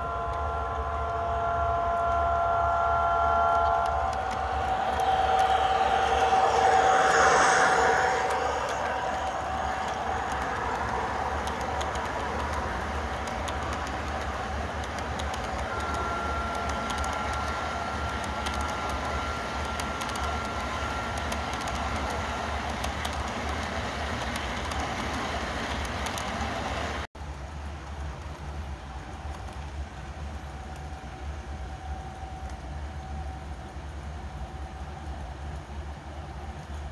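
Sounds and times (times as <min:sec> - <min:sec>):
faint steady whine: 0:00.0 - 0:36.9
model train wheels rumbling on rail: 0:00.0 - 0:36.9
small irregular clicks: 0:08.6 - 0:26.4, 0:29.2 - 0:29.7.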